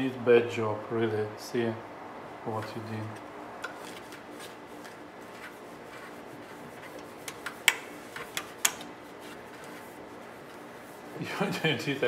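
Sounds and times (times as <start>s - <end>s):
tools clicking and tapping: 7.2s - 8.9s.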